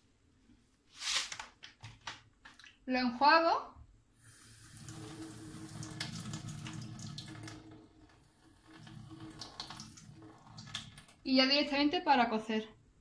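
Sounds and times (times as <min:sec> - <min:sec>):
tap water splashing into sink: 0:04.7 - 0:11.2.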